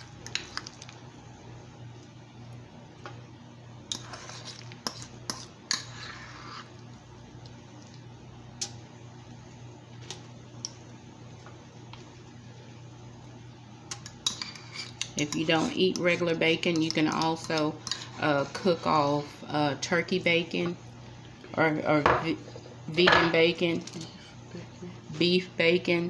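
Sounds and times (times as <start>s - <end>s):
spoon scraping bowl: 3.9s - 6.8s, 14.0s - 19.2s.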